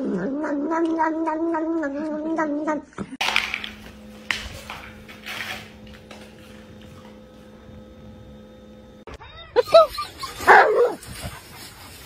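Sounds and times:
faint steady hum: 3.2s - 9.1s
dog crying harshly: 9.1s - 11.0s
dog whining yelps: 9.1s - 11.0s.

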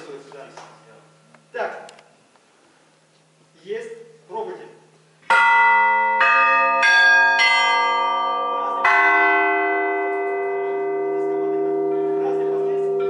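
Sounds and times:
church bells ringing: 5.3s - 13.0s.

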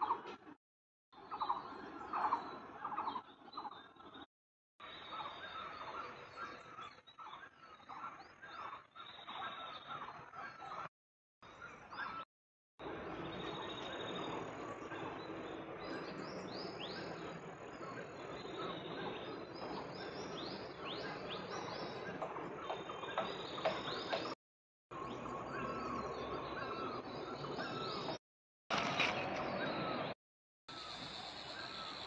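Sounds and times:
wild birds chirping: 0.0s - 0.6s, 1.2s - 32.0s
steady outdoor hiss: 12.8s - 24.3s, 30.7s - 32.0s.

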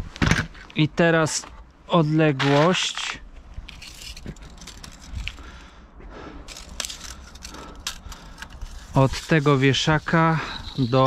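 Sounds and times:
tape measure clicks and scrapes: 2.7s - 5.4s, 6.5s - 11.0s.

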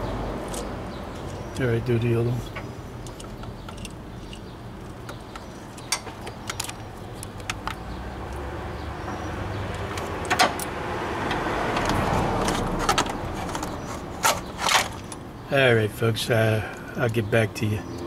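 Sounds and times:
metallic tool clicks: 3.0s - 7.8s.

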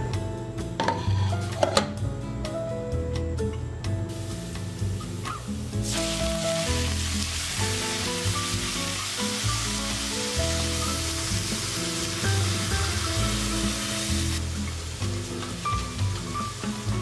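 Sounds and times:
meat sizzling in a frying pan: 4.2s - 17.0s.

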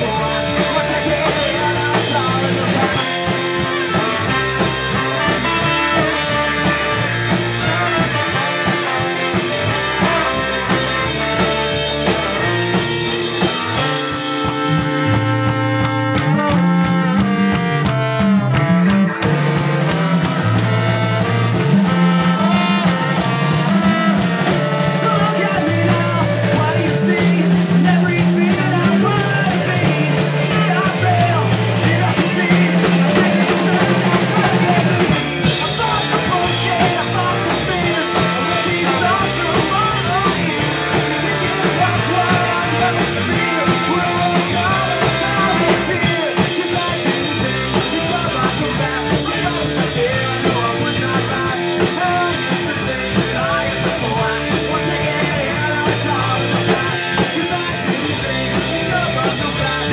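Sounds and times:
drum kit: 0.0s - 59.9s
ska-punk band playing live: 0.0s - 59.9s
steady bass line: 0.0s - 59.9s.

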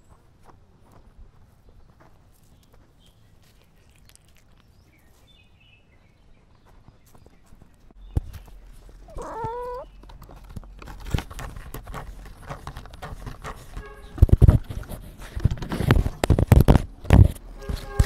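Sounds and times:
camera rustling and scraping: 7.1s - 18.0s.

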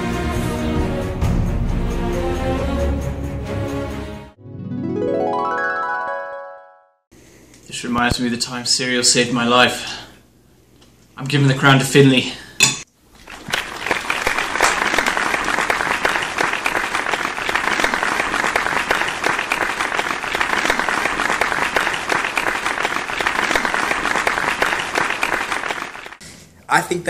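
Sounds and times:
applause: 13.2s - 26.2s.

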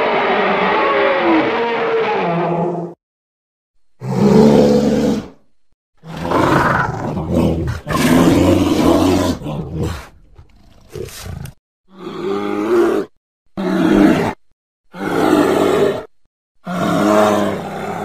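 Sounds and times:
creature roars: 4.0s - 5.4s, 6.0s - 18.0s
creature growls: 6.0s - 18.0s.

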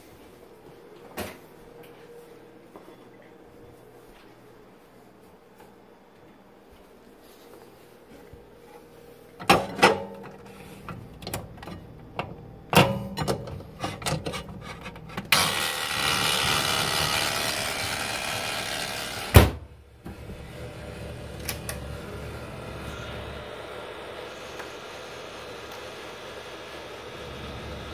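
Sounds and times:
microwave humming: 9.3s - 27.9s
microwave rushing noise: 9.4s - 27.9s.

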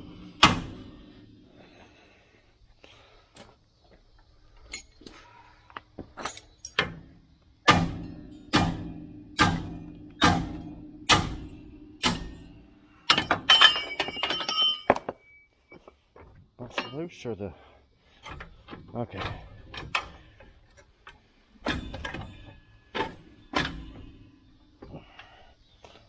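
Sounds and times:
metal clanks and clinks: 4.6s - 5.2s, 6.1s - 7.0s, 11.4s - 15.5s, 16.6s - 17.3s, 18.2s - 24.3s.

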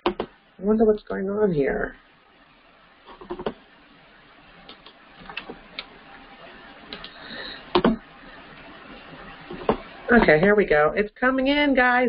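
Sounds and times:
computer mouse clicks: 3.1s - 3.6s.

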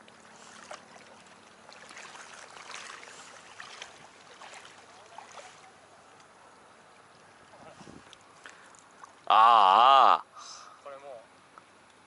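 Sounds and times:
water lapping at bank: 0.0s - 9.3s.

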